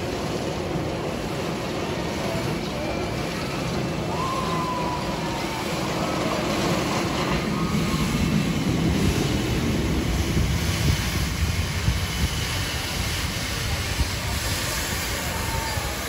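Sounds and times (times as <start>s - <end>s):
steam hissing: 0.0s - 16.0s
steam locomotive rumble: 0.0s - 16.0s.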